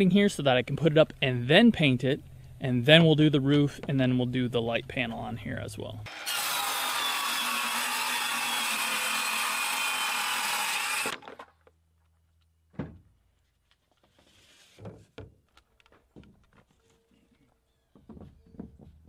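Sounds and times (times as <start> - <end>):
circular saw cutting panel: 6.1 - 11.3.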